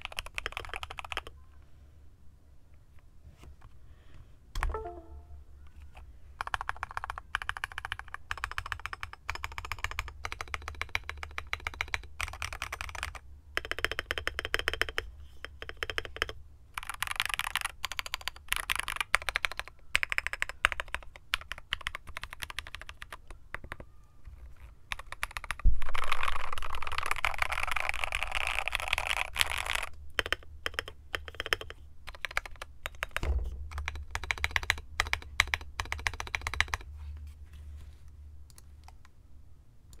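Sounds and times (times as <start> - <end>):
mechanical keyboard keystrokes: 0.0 - 1.3, 6.4 - 15.0, 15.6 - 23.8, 24.9 - 36.9
thump: 33.2 - 33.8.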